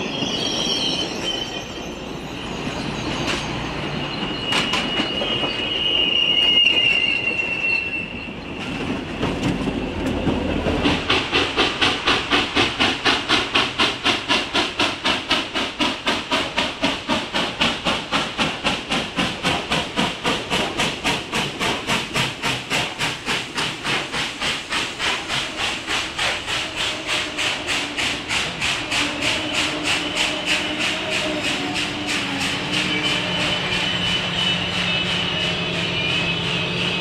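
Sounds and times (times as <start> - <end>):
steam locomotive chuffing: 1.1 - 37.0.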